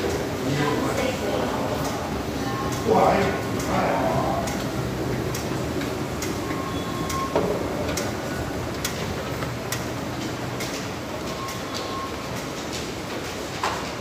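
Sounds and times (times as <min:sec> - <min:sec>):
metro station rumble and hum: 0:00.0 - 0:14.0
faint short beeps: 0:06.5 - 0:07.4.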